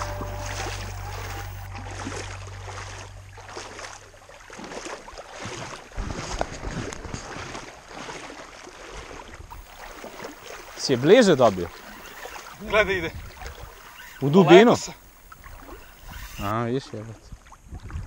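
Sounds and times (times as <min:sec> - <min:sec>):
low music tones: 0:00.0 - 0:04.1
wind buffeting the microphone: 0:12.5 - 0:13.8, 0:17.2 - 0:18.0.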